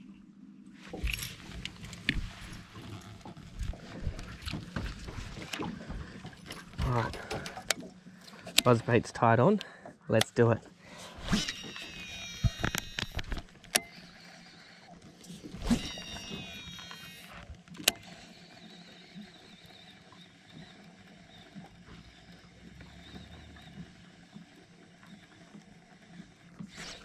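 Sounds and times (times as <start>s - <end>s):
reel spool whirring whine: 0.0s - 9.0s, 10.8s - 27.0s
fishing reel click: 11.2s - 24.1s.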